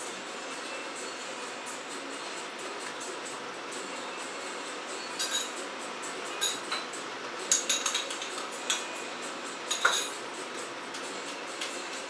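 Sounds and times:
metal and crockery clinks: 5.2 - 5.6, 7.5 - 8.9, 9.7 - 10.2.

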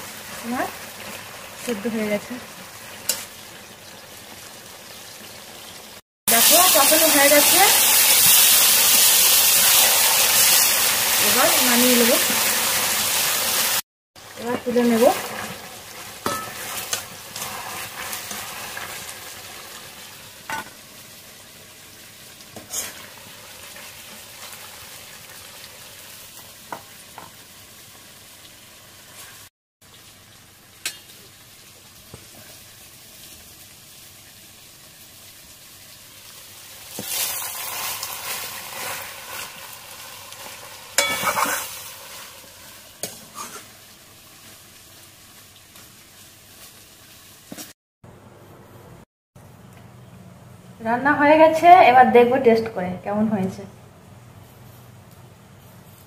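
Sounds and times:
food sizzling in a pan: 0.0 - 47.8
ladle clinking on metal: 41.0 - 41.5.

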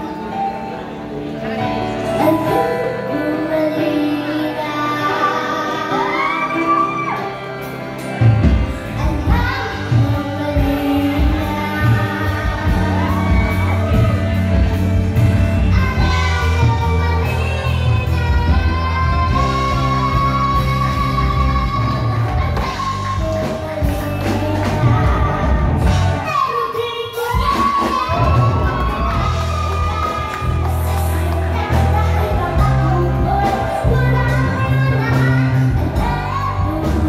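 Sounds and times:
live band: 0.0 - 37.0
girl singing pop ballad: 1.9 - 37.0
drums and bass beat: 8.0 - 26.4, 27.2 - 37.0.

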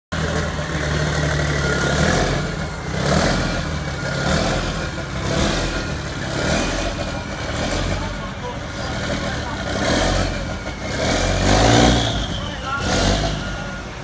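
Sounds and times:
diesel truck engine revving: 0.1 - 14.0.

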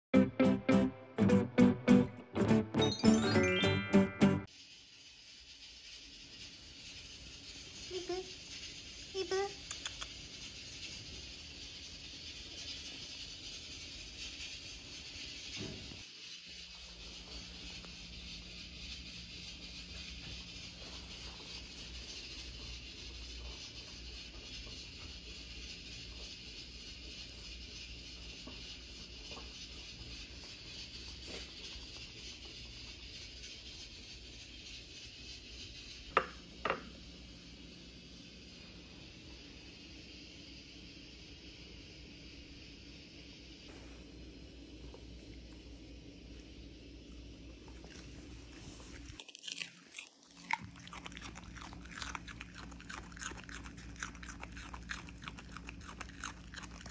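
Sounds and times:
rice cooker steam hissing: 4.5 - 49.1.

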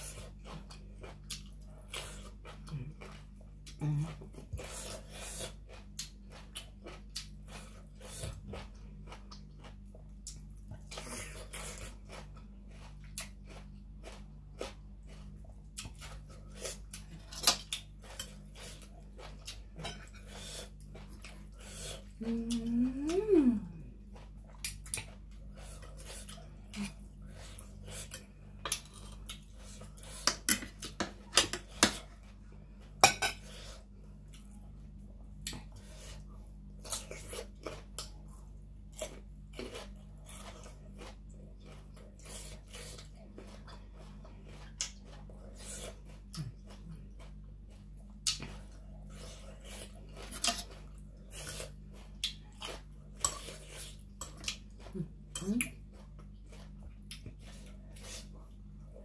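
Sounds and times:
chewing food: 0.0 - 59.0
faint low hum: 0.0 - 59.0
cutlery scraping on a plate: 33.0 - 33.7.

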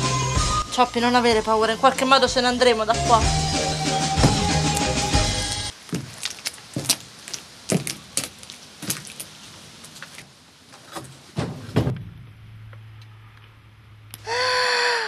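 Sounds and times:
heavy knock: 4.2 - 4.8
footsteps on dry ground: 4.2 - 10.3
clicks and rattles of climbing: 5.9 - 12.2.

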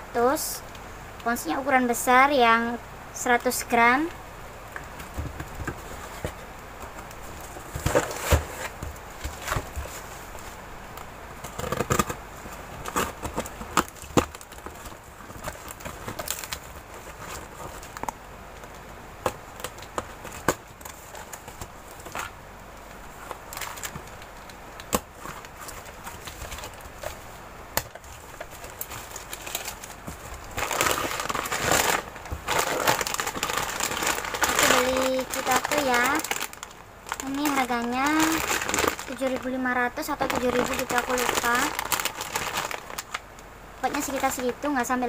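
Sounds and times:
plastic packaging crinkling: 4.8 - 12.2, 12.8 - 45.0
cardboard flaps rustling: 4.9 - 18.1, 19.2 - 43.2
packing tape tearing: 11.4 - 12.2, 12.8 - 18.1, 27.8 - 39.4, 40.2 - 43.2.

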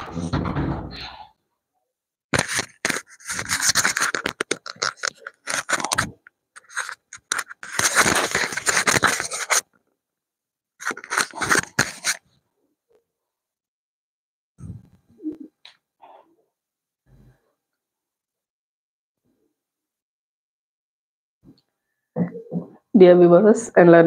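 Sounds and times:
scraping and rubbing: 2.4 - 9.7, 10.8 - 12.3.

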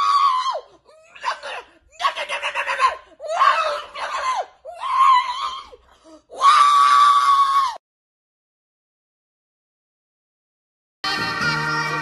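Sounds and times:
person screaming: 0.0 - 7.8.

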